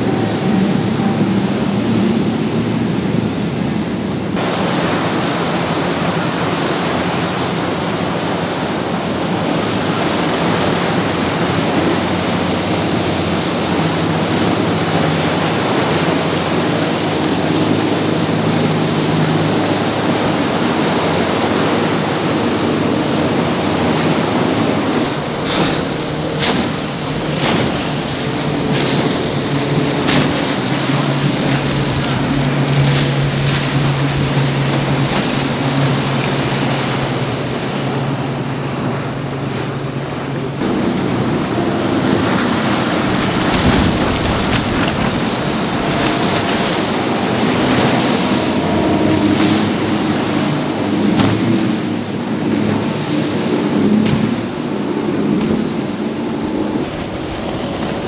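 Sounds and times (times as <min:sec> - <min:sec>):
motorboat engines running: 0:00.0 - 0:58.0
wind buffeting microphone: 0:00.0 - 0:58.0.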